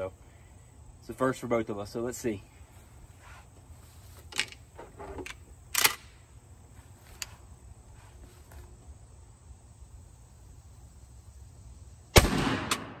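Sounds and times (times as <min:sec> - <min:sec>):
outdoor background: 0:00.0 - 0:13.0
shotgun action clicking: 0:05.3 - 0:06.1.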